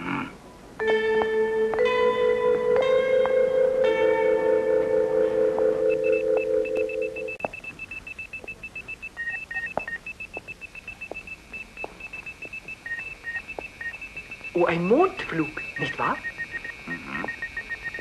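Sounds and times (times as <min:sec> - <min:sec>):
held musical chord: 0:00.8 - 0:07.4
lower-pitched beeps: 0:04.7 - 0:18.0
high-pitched electronic beeps: 0:05.8 - 0:18.0.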